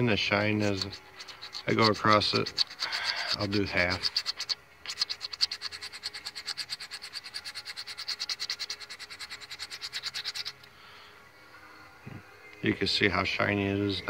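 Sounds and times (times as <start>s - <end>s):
abrasive pad scrubbing metal: 0.0s - 10.7s.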